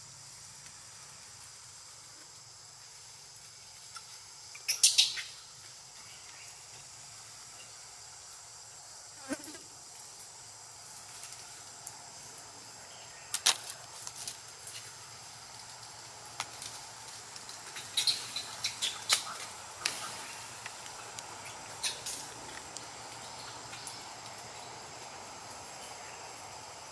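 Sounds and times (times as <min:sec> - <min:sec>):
insects droning: 0:00.0 - 0:26.9
twigs and leaves snapping and rustling: 0:13.3 - 0:24.5.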